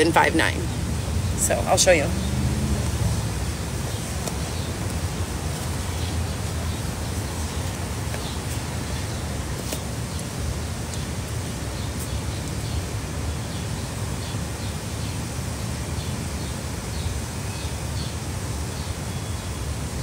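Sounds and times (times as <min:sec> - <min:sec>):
low rumble and hiss: 0:00.0 - 0:20.0.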